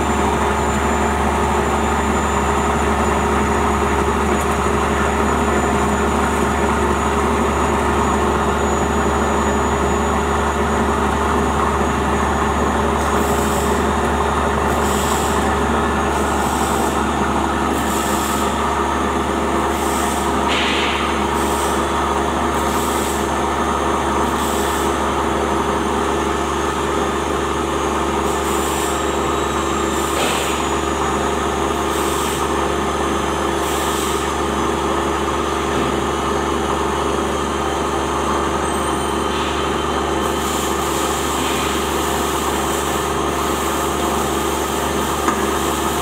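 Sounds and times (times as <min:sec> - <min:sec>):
machine hum: 0:00.0 - 0:33.6.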